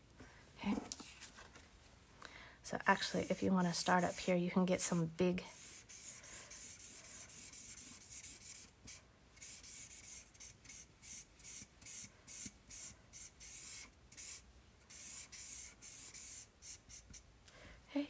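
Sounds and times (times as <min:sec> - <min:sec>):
marker rubbing on card: 0:03.0 - 0:04.3, 0:04.9 - 0:17.2.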